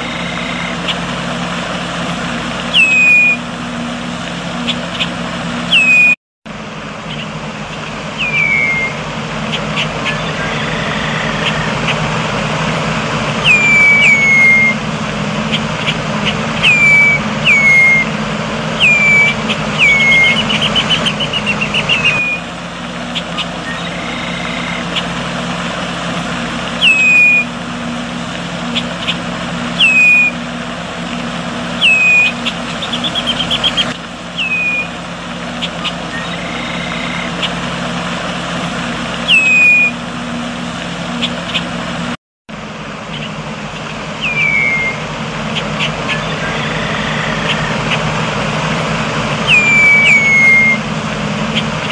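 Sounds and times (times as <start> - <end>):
blackbird whistled call: 0.0 - 1.4, 2.6 - 3.5, 4.6 - 6.2, 7.0 - 12.0, 13.4 - 14.8, 15.4 - 22.5, 23.1 - 25.1, 26.8 - 27.6, 28.7 - 30.5, 31.7 - 37.6, 39.2 - 40.0, 43.1 - 48.1, 49.4 - 50.8
low hum: 0.0 - 51.9
bird descending chatter: 2.6 - 3.4, 7.0 - 12.2, 13.4 - 14.8, 15.4 - 18.1, 18.8 - 25.2, 26.8 - 27.5, 28.6 - 30.4, 31.7 - 37.7, 39.2 - 40.0, 43.1 - 48.1, 49.3 - 50.8.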